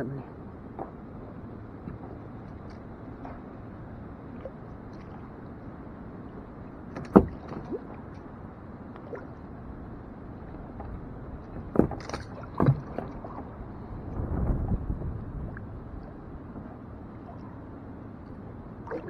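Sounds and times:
water washing against hull: 0.1s - 19.0s
knocks and splashes: 1.8s - 3.6s, 6.9s - 8.2s, 10.8s - 13.6s.

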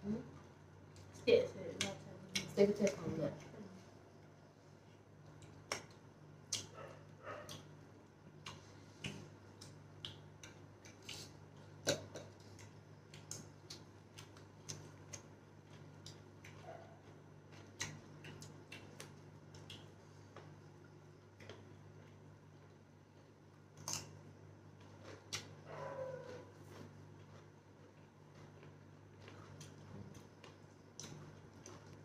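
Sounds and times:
steady low hum: 0.0s - 32.0s
chewing crunches: 5.2s - 32.0s
mouth clicks and lip smacks: 8.4s - 15.3s.

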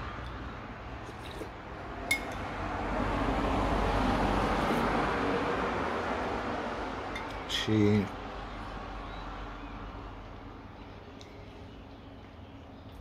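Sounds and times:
road traffic noise: 0.0s - 13.0s
cutlery clinking on a plate: 2.1s - 2.4s.

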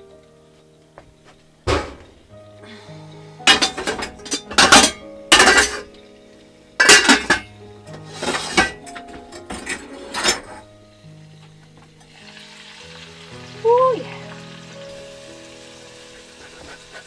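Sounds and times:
metal pots and pans clanking: 1.7s - 2.2s, 3.4s - 6.0s, 6.8s - 10.7s.

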